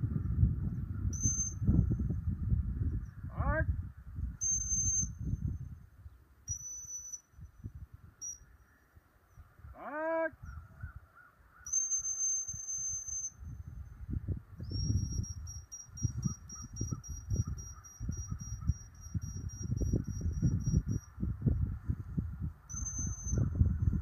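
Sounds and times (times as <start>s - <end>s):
wind rumble on microphone: 0.0s - 6.7s, 7.3s - 24.0s
person shouting a command: 3.3s - 3.7s, 9.8s - 10.4s.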